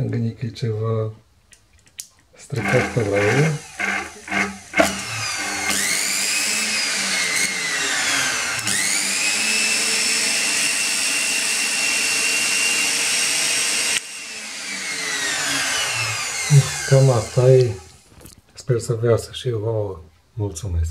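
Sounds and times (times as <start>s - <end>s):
motor whining: 2.6s - 18.4s.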